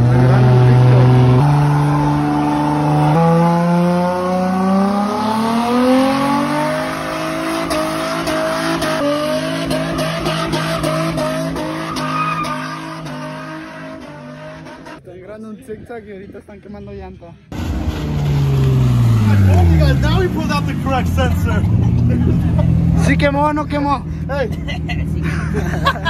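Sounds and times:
car engine revving: 0:00.0 - 0:15.0, 0:17.5 - 0:24.1
tyres squealing on pavement: 0:10.2 - 0:15.0.

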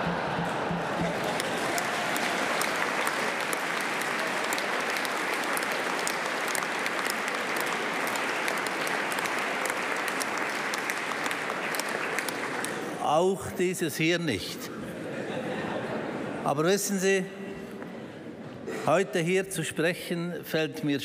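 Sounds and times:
crowd applauding: 0:00.0 - 0:13.4.

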